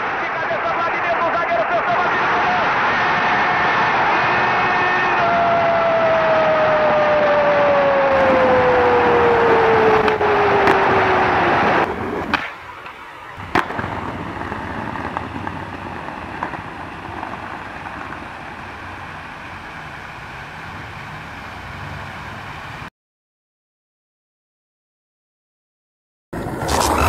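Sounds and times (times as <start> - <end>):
skateboard wheels rolling on stone: 8.1 - 21.7, 26.4 - 27.0
skateboard clack: 9.4 - 19.2.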